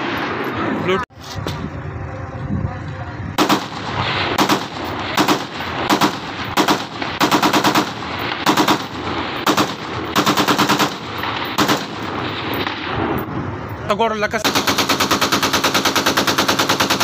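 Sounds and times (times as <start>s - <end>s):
automatic gunfire bursts: 3.4s - 13.0s, 14.4s - 17.0s.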